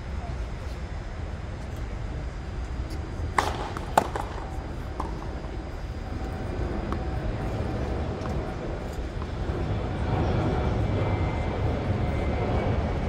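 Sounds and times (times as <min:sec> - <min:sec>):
tennis ball pops: 0:03.3 - 0:05.4.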